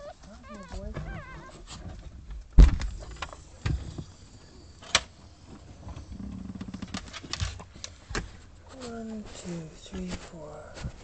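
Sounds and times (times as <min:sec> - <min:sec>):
puppy squealing: 0:00.0 - 0:01.7
knocks and thumps: 0:00.6 - 0:04.1.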